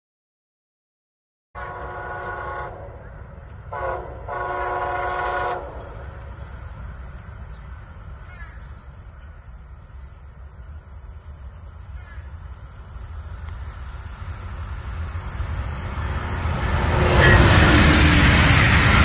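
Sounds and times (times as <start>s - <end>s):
distant train horn: 1.6s - 7.6s, 15.3s - 19.0s
steady low rumble: 8.8s - 19.0s.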